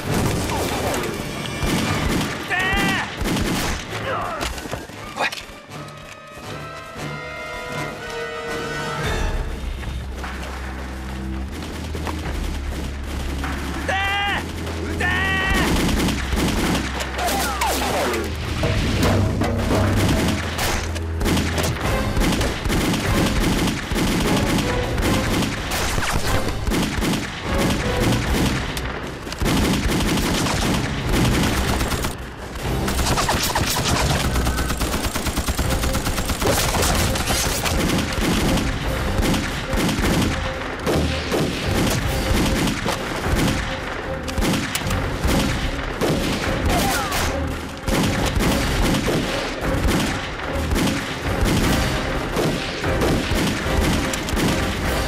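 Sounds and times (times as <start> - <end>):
rifle and machine gun fire: 1.6 - 3.9, 11.6 - 17.6, 19.8 - 55.0.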